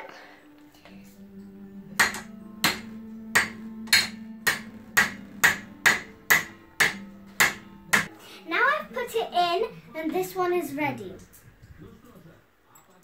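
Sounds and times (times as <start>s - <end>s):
hammer striking metal bolt: 2.0s - 8.1s.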